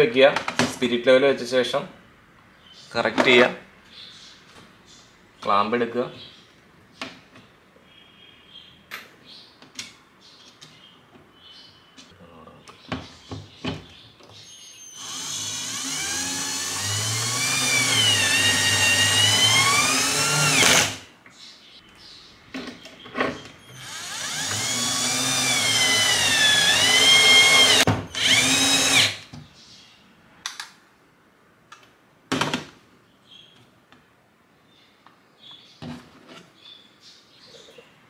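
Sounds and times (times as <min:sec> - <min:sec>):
cordless drill whining: 0:14.9 - 0:21.0, 0:23.7 - 0:29.2.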